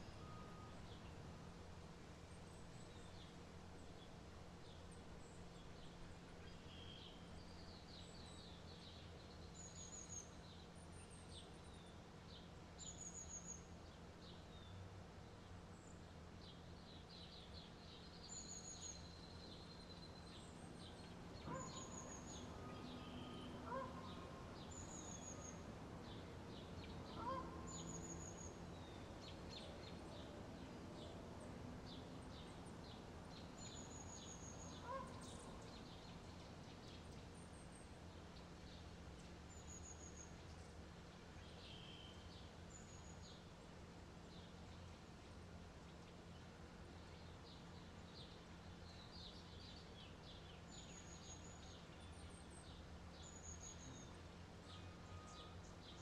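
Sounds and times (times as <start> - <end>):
small birds chirping: 15.8 - 31.2.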